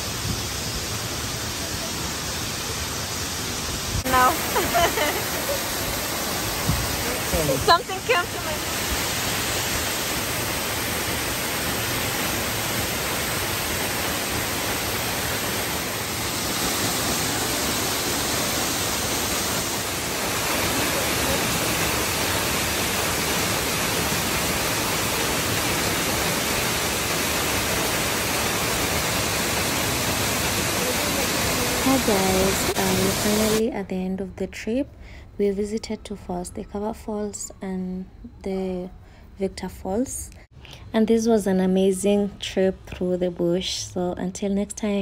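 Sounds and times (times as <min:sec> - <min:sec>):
waterfall rushing: 0:00.0 - 0:33.6.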